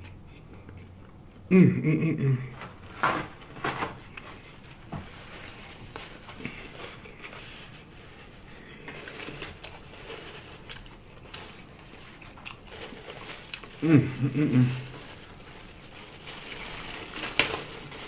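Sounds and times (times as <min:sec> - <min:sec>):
chewing food: 0:08.9 - 0:14.1.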